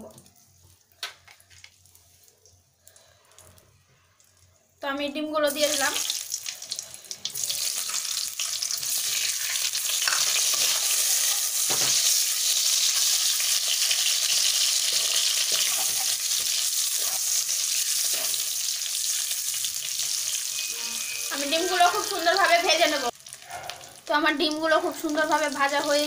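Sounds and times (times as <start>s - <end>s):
eggs sizzling in hot oil: 5.4s - 26.0s.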